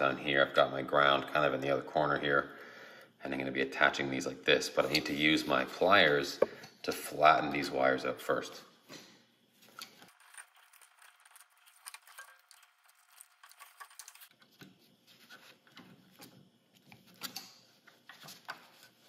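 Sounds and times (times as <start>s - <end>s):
pliers clicking and scraping wire: 9.6s - 14.4s, 15.7s - 17.6s
wires rattling against metal box: 9.7s - 14.4s.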